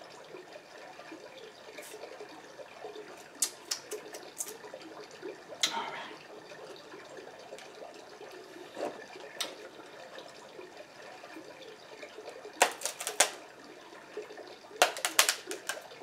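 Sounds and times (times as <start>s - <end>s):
crab shell cracking: 3.4s - 4.5s, 12.6s - 13.4s, 14.8s - 15.9s.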